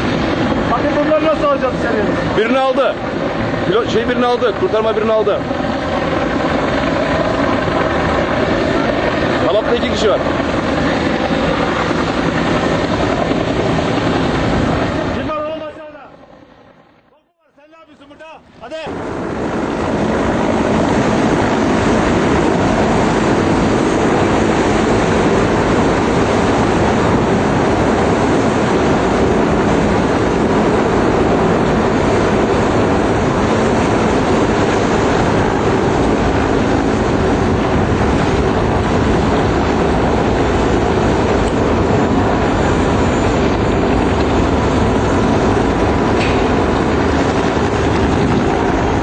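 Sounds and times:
helicopter rotor and engine rumble: 0.0 - 49.0.

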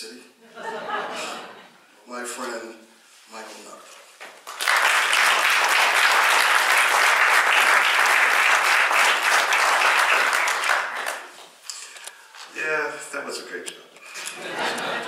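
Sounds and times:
audience applauding: 4.4 - 11.4.

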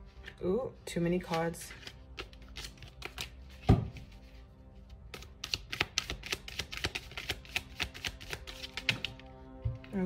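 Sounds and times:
soft background music: 0.0 - 10.0
cards being shuffled: 1.2 - 4.4, 5.1 - 9.3.

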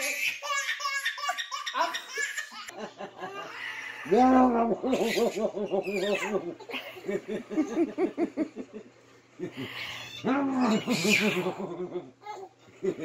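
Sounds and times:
rhythmic laughing: 4.6 - 13.0.

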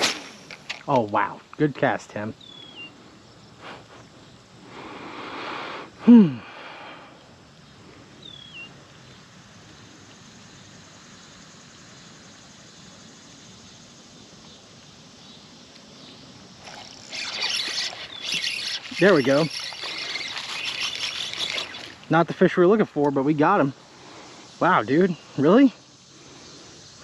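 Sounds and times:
faint high chirp: 8.2 - 8.7.

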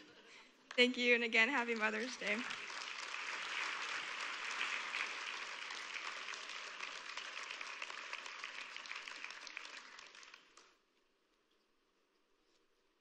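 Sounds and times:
congregation applauding: 1.4 - 10.8.

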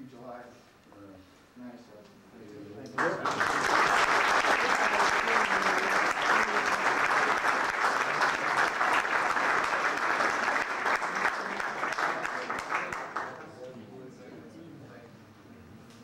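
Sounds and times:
audience applauding: 3.0 - 13.5.

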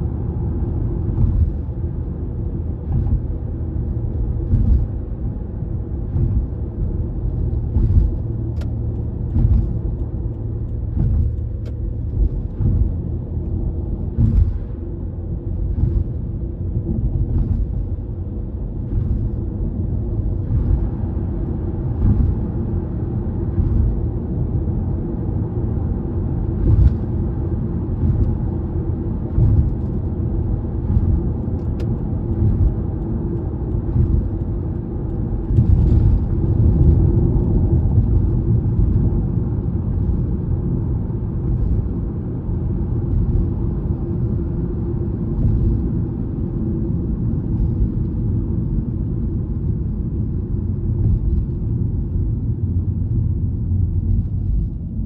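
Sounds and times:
tyre rumble inside car: 0.0 - 55.0.

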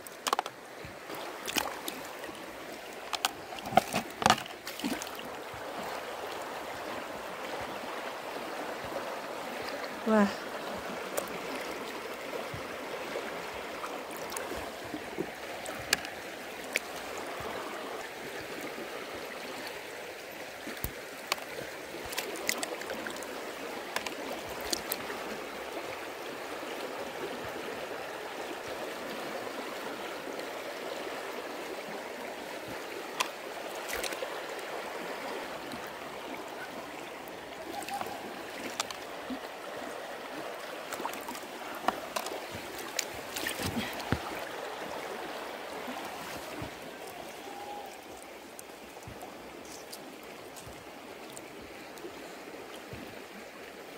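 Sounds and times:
stream water gurgling: 0.0 - 53.9
hands splashing in shallows: 3.2 - 5.3, 40.9 - 44.4.

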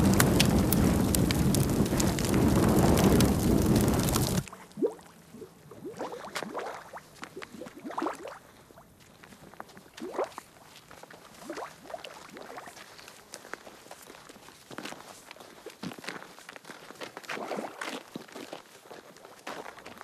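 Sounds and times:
footsteps on muddy ground: 6.4 - 20.0.

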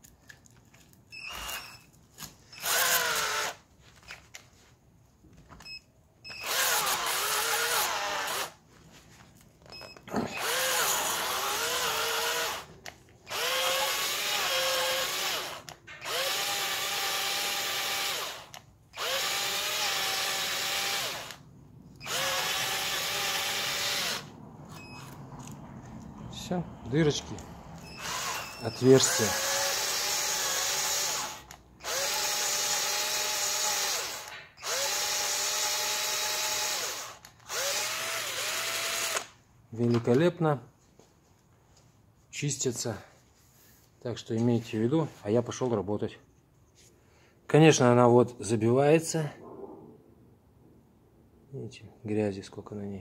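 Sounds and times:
cordless drill spinning: 0.7 - 4.4, 5.6 - 8.6, 9.6 - 21.4, 22.0 - 25.6, 27.3 - 39.4.

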